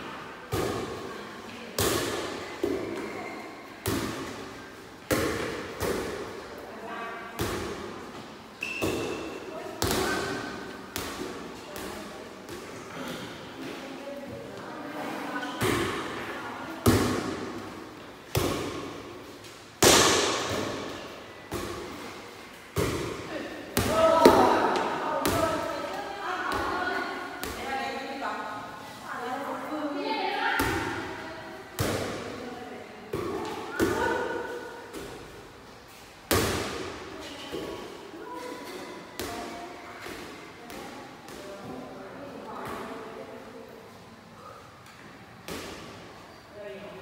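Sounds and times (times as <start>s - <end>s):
volleyball slaps in echoing hall: 0.0s - 13.9s, 15.4s - 28.0s, 30.5s - 43.3s, 44.5s - 46.2s.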